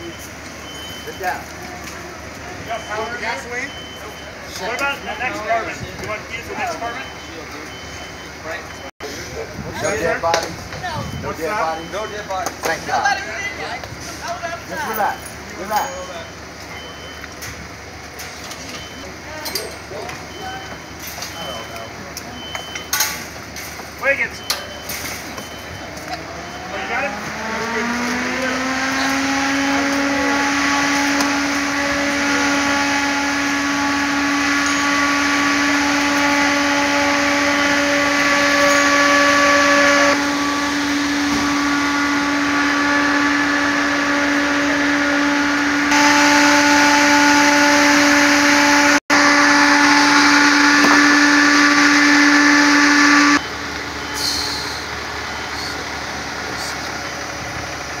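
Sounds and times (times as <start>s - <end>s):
motor whining: 25.9s - 53.4s.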